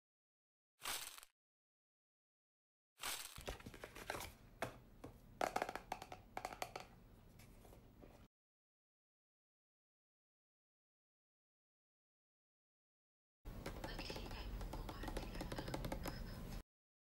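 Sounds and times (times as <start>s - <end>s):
plastic container clicks and taps: 5.4s - 6.9s, 13.6s - 16.2s.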